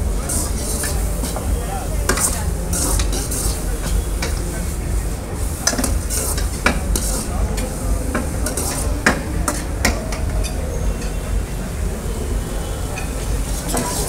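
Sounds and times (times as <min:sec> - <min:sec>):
noodles sizzling in a wok: 0:00.0 - 0:11.7
metal spatula scraping a pan: 0:00.3 - 0:01.4, 0:02.1 - 0:04.4, 0:05.5 - 0:11.2.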